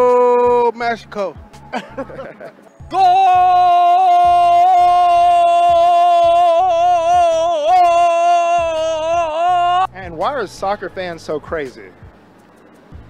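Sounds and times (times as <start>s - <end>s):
man shouting goal: 2.9s - 9.9s.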